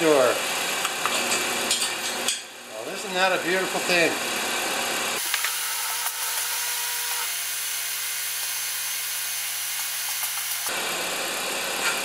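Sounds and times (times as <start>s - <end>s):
garage door opener motor: 3.2s - 12.0s.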